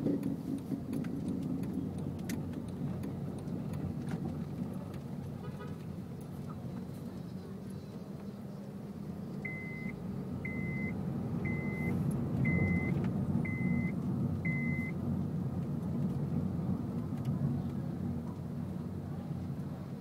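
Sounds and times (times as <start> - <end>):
car engine and road rumble: 0.0 - 20.0
short electronic beeps: 9.5 - 9.9, 10.5 - 13.9, 14.5 - 14.9.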